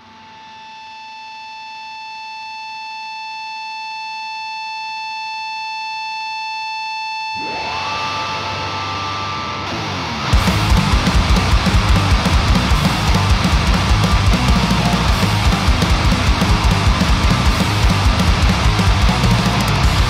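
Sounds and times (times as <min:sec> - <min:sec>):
distorted electric guitar: 0:00.0 - 0:03.7, 0:07.0 - 0:20.0.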